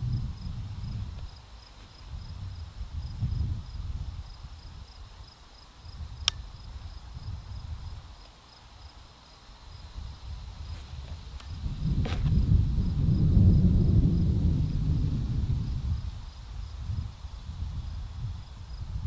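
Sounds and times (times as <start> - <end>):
wind rumbling on microphone: 0.0 - 8.2, 9.7 - 19.0
crickets chirping: 0.0 - 19.0.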